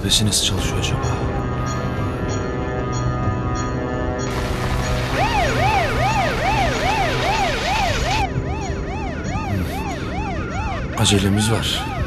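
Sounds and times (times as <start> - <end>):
police siren wailing: 4.3 - 12.0.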